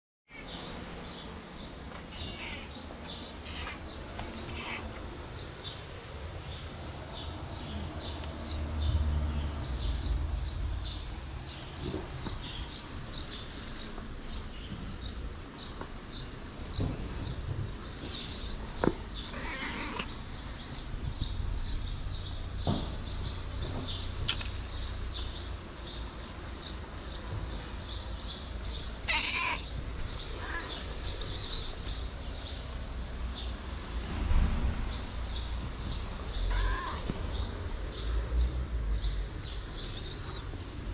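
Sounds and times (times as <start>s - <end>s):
cat meowing: 2.1s - 5.0s, 19.3s - 20.2s, 29.0s - 31.8s, 36.4s - 37.2s
rapid high chirping: 31.0s - 32.0s, 39.8s - 40.5s.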